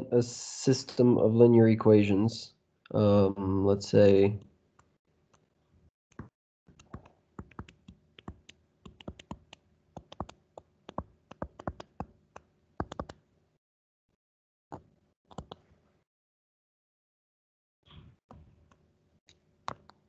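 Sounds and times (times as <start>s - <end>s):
stylus tapping on touchscreen: 6.1s - 13.1s.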